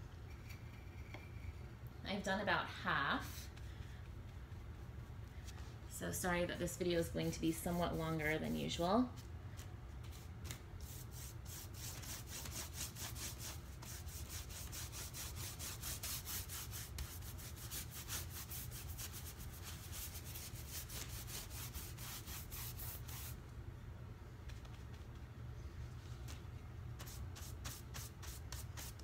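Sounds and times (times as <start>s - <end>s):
brush sweeping over stencil: 3.1s - 23.4s, 27.0s - 29.0s.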